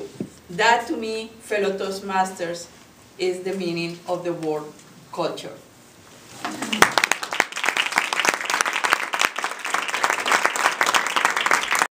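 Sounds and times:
audience applauding: 0:06.6 - 0:11.9.

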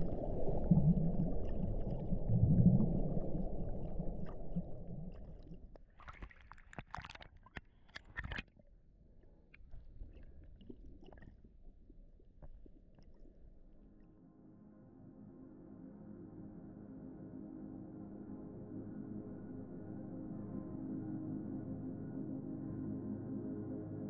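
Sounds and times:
underwater rumbling wash: 0:00.0 - 0:05.8.

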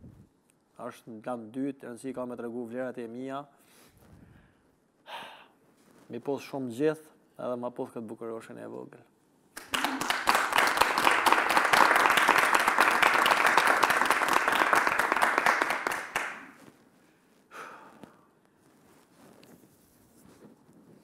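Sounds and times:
hands clapping: 0:09.6 - 0:16.7.

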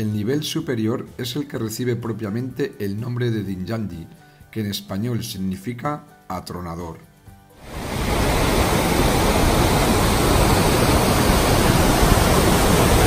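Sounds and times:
waterfall rushing: 0:07.6 - 0:13.0.

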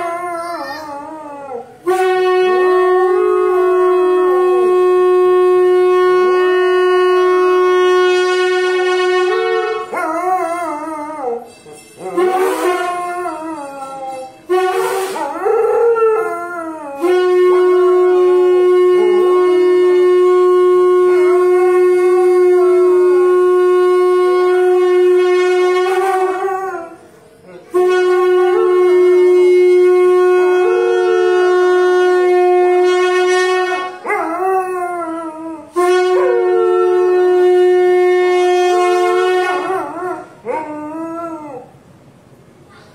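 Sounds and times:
conch shell blasts: 0:01.8 - 0:41.7
dog howling: 0:09.9 - 0:14.5, 0:18.2 - 0:20.0, 0:34.0 - 0:37.8.

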